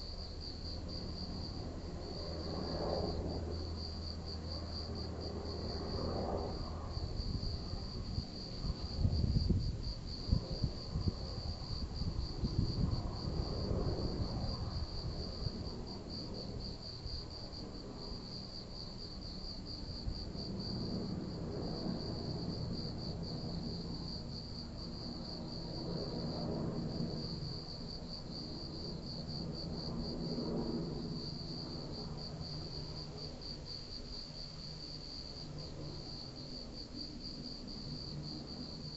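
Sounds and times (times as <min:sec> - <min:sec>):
insects chirping trill: 0:00.0 - 0:38.9.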